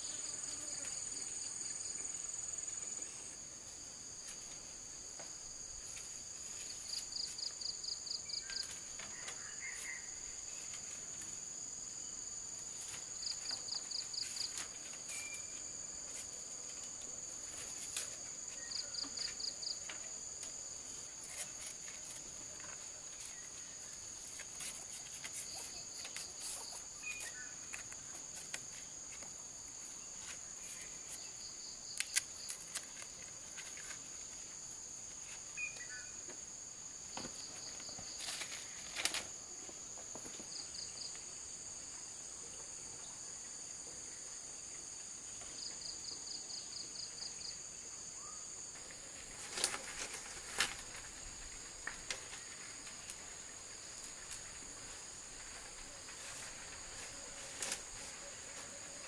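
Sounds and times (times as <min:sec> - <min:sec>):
cricket-like insect trills: 0:00.0 - 0:59.0
insects droning: 0:00.0 - 0:59.0.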